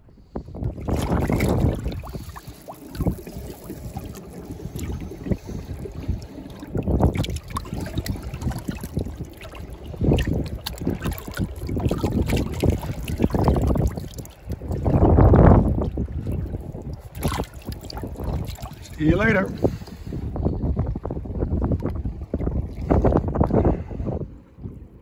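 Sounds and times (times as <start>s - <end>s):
sea water splashing: 0.5s - 25.0s.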